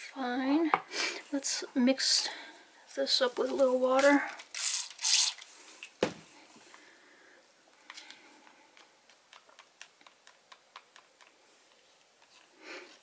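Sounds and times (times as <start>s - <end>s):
spray bottle squirting water: 4.5s - 5.4s.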